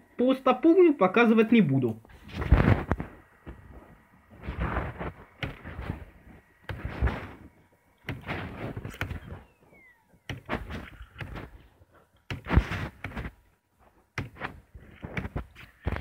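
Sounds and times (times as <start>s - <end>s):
camera handling knocks and thuds: 4.4s - 7.4s, 8.0s - 9.4s, 10.2s - 11.6s, 12.3s - 13.4s, 14.2s - 16.0s.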